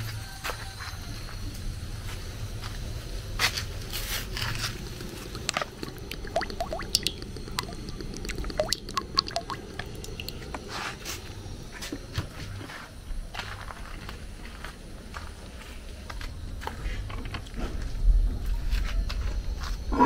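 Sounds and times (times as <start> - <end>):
wet food squishing: 4.3 - 10.6.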